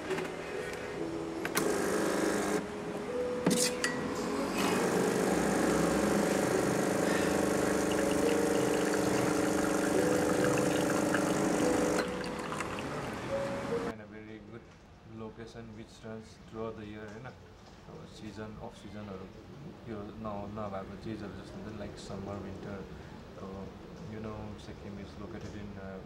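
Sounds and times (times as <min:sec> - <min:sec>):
espresso machine pump running: 0:01.5 - 0:02.6, 0:04.4 - 0:13.9.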